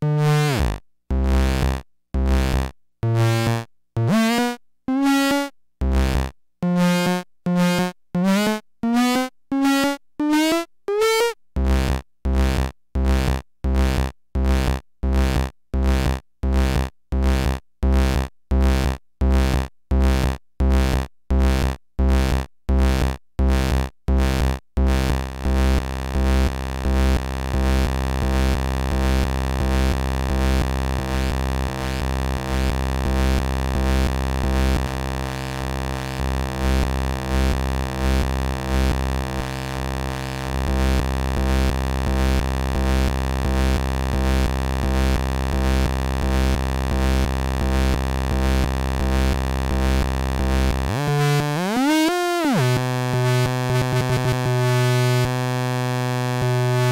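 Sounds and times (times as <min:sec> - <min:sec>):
deep synthesizer bass tone: 0:22.9 - 0:56.9.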